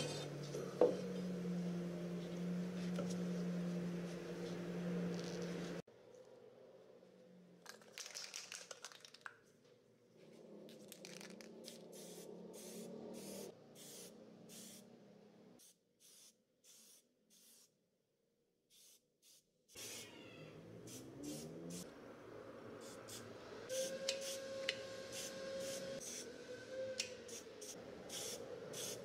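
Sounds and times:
spray paint can hissing: 0:11.6 - 0:14.8, 0:15.6 - 0:17.8, 0:18.7 - 0:20.0, 0:25.1 - 0:26.2, 0:27.3 - 0:29.0.

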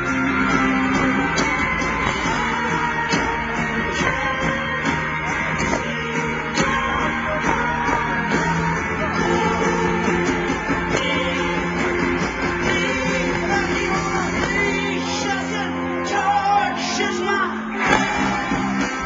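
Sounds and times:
steady drum beat: 0:00.0 - 0:15.6, 0:17.8 - 0:19.0
strummed guitars: 0:00.0 - 0:19.0.

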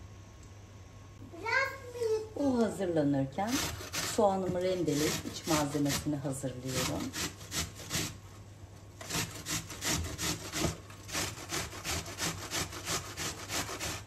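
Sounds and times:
onion grating on metal grater: 0:03.4 - 0:08.2, 0:09.0 - 0:14.0.

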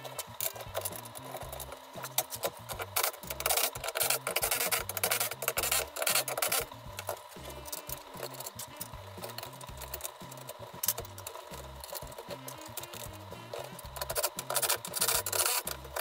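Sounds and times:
background music with bassline: 0:00.0 - 0:16.0
chair parts rubbing and scraping: 0:00.0 - 0:16.0.

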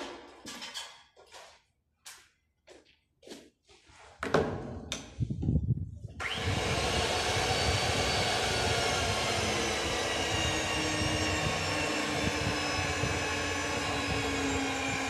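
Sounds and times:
metal clanks and knocks: 0:00.0 - 0:01.2
electric motor whining and running: 0:06.2 - 0:15.0.

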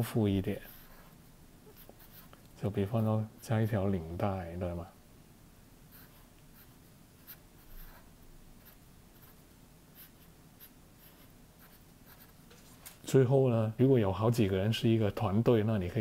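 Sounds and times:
felt-tip marker scratching paper: 0:01.7 - 0:03.1, 0:05.9 - 0:12.4.

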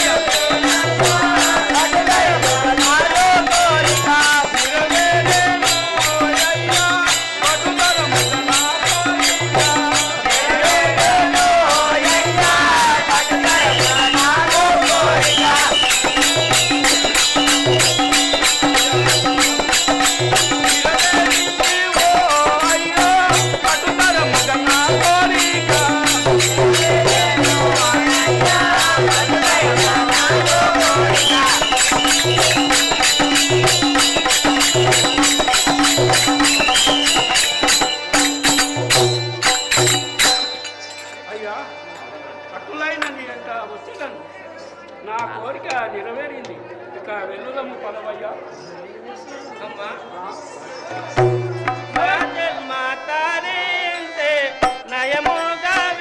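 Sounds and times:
folk music with drums: 0:00.0 - 0:42.1, 0:50.9 - 0:56.0
jingling percussion: 0:00.0 - 0:42.4, 0:50.5 - 0:56.0
wavering melody: 0:22.8 - 0:42.4.

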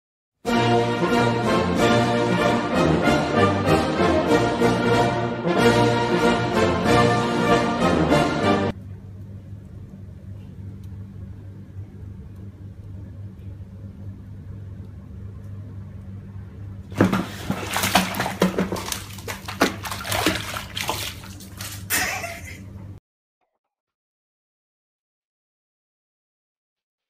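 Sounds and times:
faint low hum: 0:08.7 - 0:23.0
cat splashing into bath: 0:16.9 - 0:22.6
water splashing and sloshing: 0:16.9 - 0:22.7.

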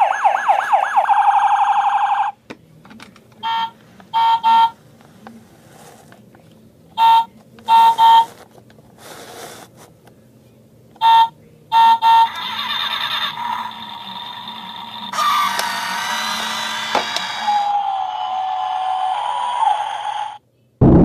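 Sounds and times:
toy car horn beeps: 0:03.4 - 0:04.8, 0:07.0 - 0:08.3, 0:11.0 - 0:12.4.

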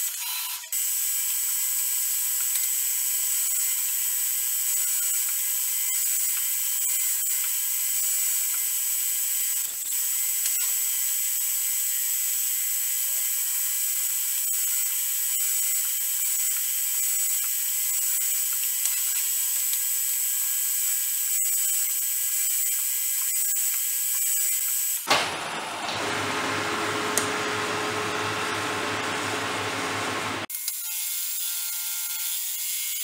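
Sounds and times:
machine thump: 0:25.1 - 0:30.4.

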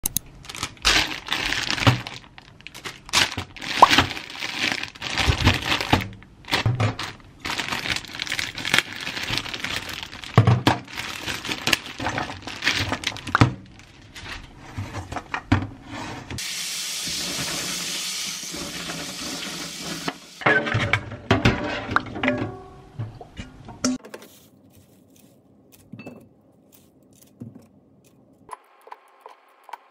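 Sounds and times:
plastic bag crinkling: 0:00.0 - 0:14.6, 0:24.0 - 0:29.9
tap water running: 0:16.4 - 0:20.4.

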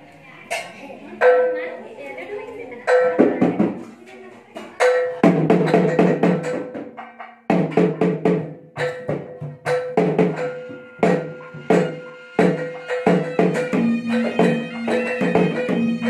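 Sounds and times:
fast interlocking drumming: 0:04.6 - 0:16.0.

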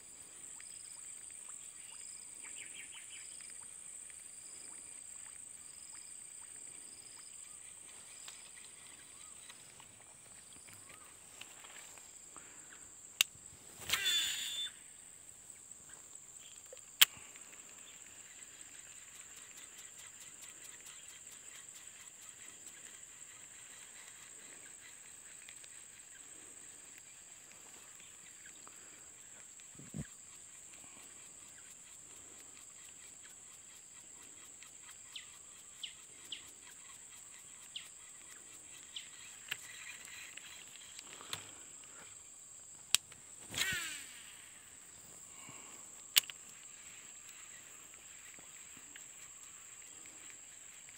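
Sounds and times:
insects droning: 0:00.0 - 0:50.9
fishing reel click: 0:13.9 - 0:14.8, 0:46.1 - 0:46.4.

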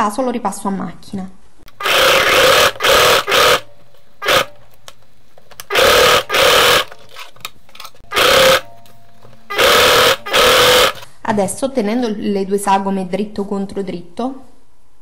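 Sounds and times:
sewing machine stitching: 0:01.7 - 0:04.5, 0:05.7 - 0:06.9, 0:08.1 - 0:08.6, 0:09.5 - 0:11.0.

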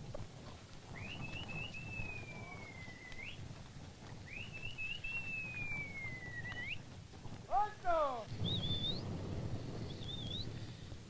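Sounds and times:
whistled phrases: 0:00.9 - 0:03.4, 0:04.2 - 0:06.8, 0:07.5 - 0:09.1.

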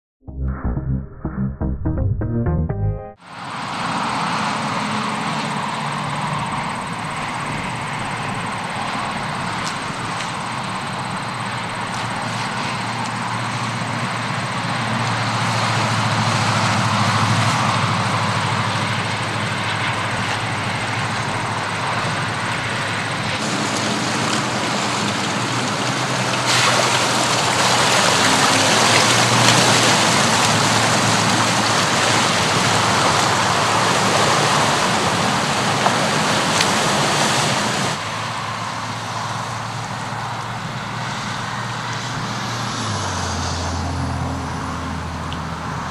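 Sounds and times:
diesel engine running: 0:00.2 - 0:45.9
water rushing and splashing: 0:03.3 - 0:39.8.

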